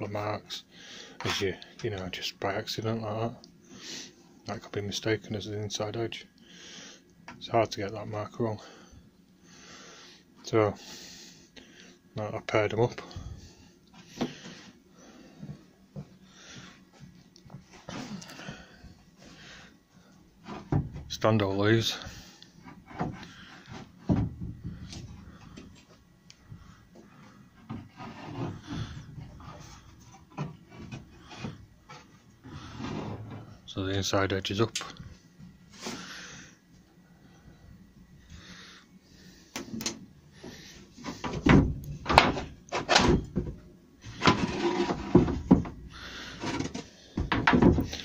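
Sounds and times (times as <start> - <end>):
dull wooden knocks: 24.0 - 25.0, 46.4 - 48.0
wood boards rubbing: 27.6 - 33.6, 40.4 - 48.0.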